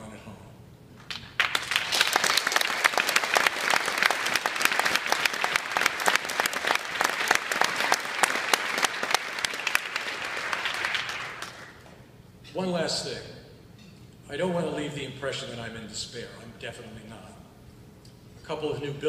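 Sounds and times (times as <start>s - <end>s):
audience applauding: 1.0s - 11.9s.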